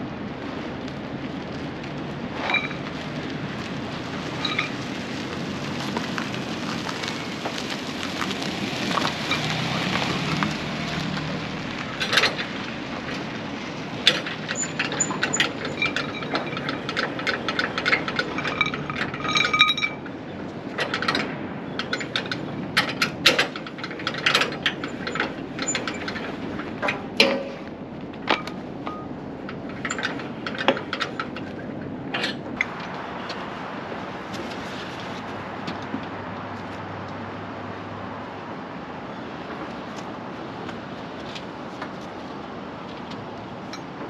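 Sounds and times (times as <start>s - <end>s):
car passing close by: 4.0s - 13.8s.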